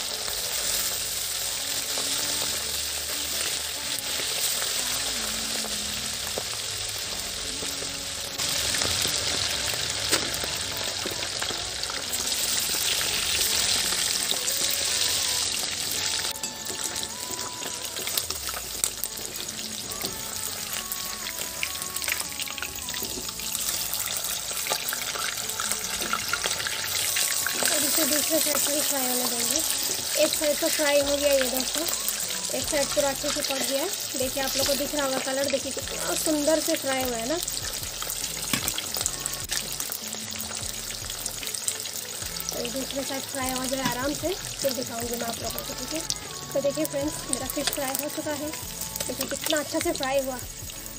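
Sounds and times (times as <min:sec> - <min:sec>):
fish sizzling in hot oil: 0:00.0 - 0:50.9
soft background music: 0:00.0 - 0:50.9.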